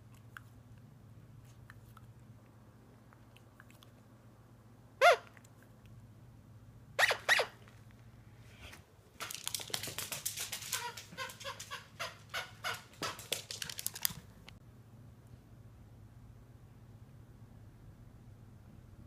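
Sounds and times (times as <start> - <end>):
dog yipping: 5.0 - 5.4, 7.0 - 7.6
dog claws clicking on wooden floor: 9.2 - 11.8, 12.7 - 14.3.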